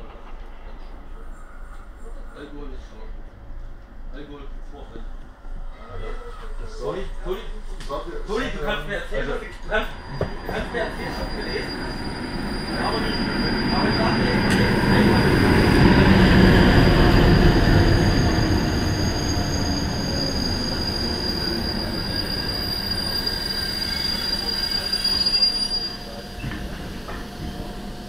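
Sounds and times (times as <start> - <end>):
diesel train rumbling past: 0.0 - 28.0
high-pitched wheel squeal: 9.9 - 16.7, 17.9 - 27.2.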